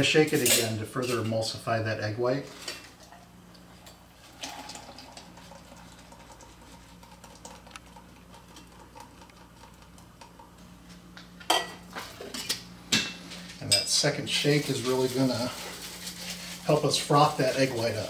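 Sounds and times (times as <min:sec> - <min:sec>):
liquid pouring between metal tins: 0:04.3 - 0:10.5
metal shaker tins clinking: 0:11.5 - 0:18.0.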